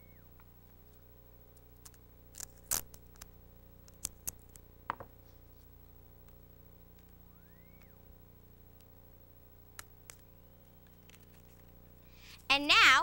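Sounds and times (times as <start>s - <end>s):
faint steady hum: 0.0s - 13.0s
paper snaps and crackles: 1.8s - 4.7s, 9.7s - 11.8s.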